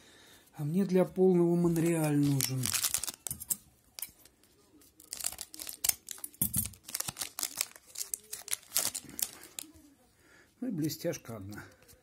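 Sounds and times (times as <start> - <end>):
foil wrapper crinkling and tearing: 1.6 - 4.1, 4.9 - 9.8.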